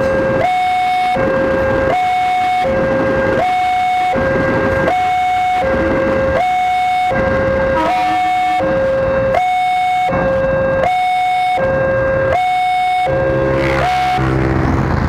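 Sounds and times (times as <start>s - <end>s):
level crossing two-tone alarm: 0.0s - 14.4s
deep droning tone: 0.0s - 15.0s.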